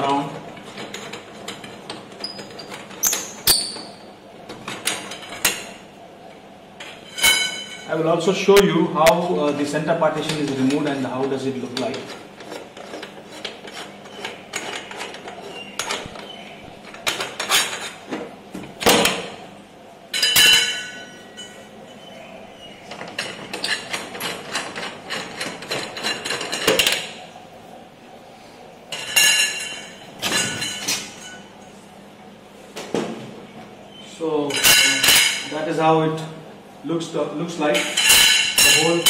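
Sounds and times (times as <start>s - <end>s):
metal rods knocking and rattling: 22.9s - 27.0s.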